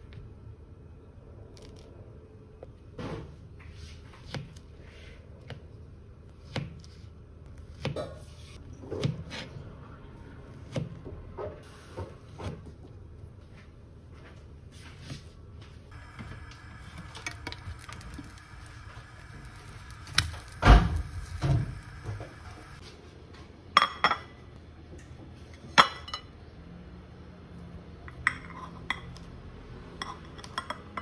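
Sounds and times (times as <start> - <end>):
steady sizzle: 15.9 - 22.8.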